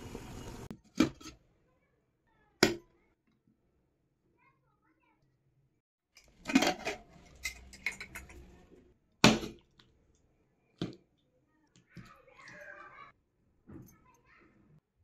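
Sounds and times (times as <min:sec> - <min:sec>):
metal cookware clattering: 0:06.2 - 0:09.6.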